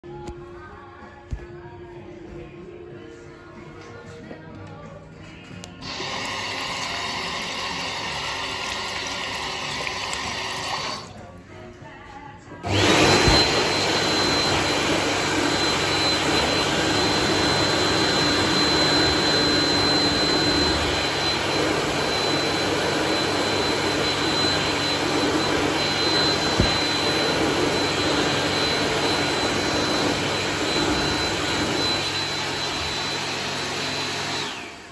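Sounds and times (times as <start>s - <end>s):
hand dryer rushing air: 5.8s - 11.1s, 12.6s - 34.9s.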